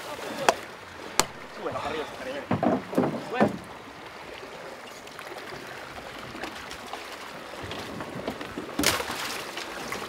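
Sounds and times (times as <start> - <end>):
sea water washing: 0.0 - 10.0
wind: 0.0 - 10.0
faint knocks on boat deck: 2.4 - 3.7.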